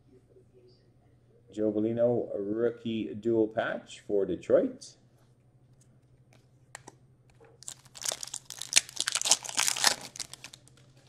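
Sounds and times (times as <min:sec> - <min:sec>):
foil wrapper crinkling: 0:07.6 - 0:11.0.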